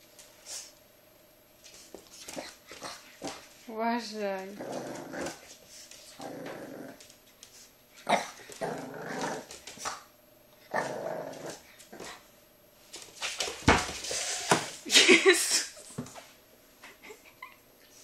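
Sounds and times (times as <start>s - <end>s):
puppy growling and barking: 4.6s - 7.1s, 8.0s - 12.2s.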